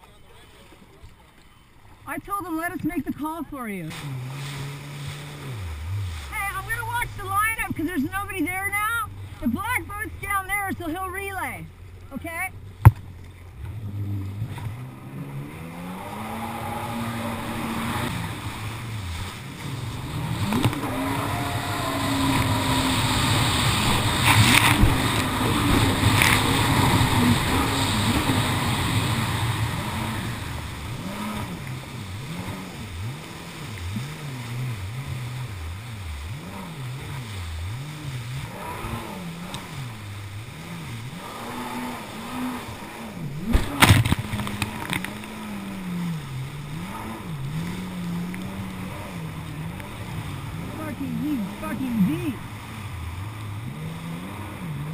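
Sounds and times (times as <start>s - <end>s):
jet ski engine revving: 0.0s - 54.9s
water slapping hull: 0.0s - 54.9s
water rushing and spray: 2.1s - 54.9s
loud thump: 43.5s - 44.2s.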